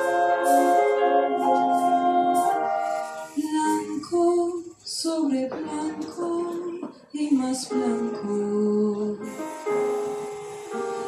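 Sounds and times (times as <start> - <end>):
small wind ensemble playing: 0.0 - 3.8, 9.3 - 11.0
woman singing: 0.0 - 9.3.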